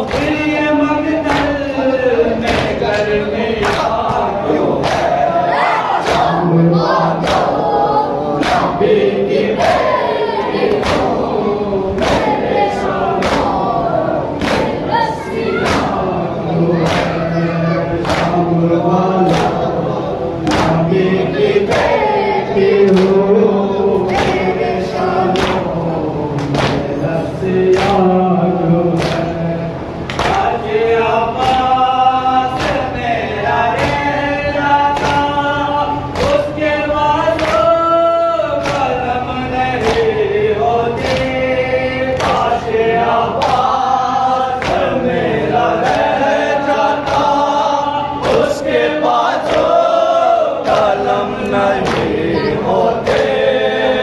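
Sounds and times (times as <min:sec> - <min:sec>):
congregation chanting: 0:00.0 - 0:54.0
men chanting on a microphone: 0:00.0 - 0:54.0
chest-beating slaps: 0:02.4 - 0:05.2, 0:10.6 - 0:11.4, 0:12.0 - 0:13.8, 0:14.4 - 0:16.2, 0:16.8 - 0:17.3, 0:19.2 - 0:19.7, 0:29.0 - 0:29.3, 0:31.4 - 0:31.8, 0:44.6 - 0:45.0.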